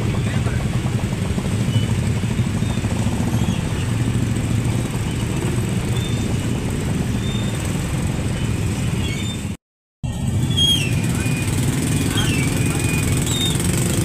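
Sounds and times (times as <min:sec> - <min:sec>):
vehicle engine running: 0:00.0 - 0:09.4, 0:10.0 - 0:14.0
road traffic noise: 0:00.0 - 0:14.0.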